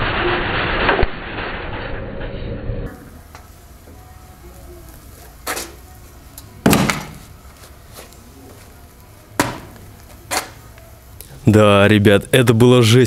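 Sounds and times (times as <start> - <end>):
sharp knocks: 6.6 - 7.2, 9.4 - 9.8.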